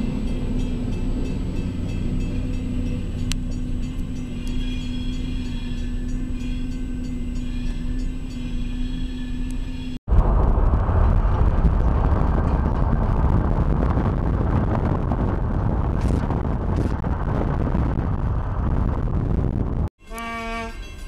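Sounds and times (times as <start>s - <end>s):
car road noise: 0.0s - 19.9s
wind buffeting microphone: 10.0s - 19.9s.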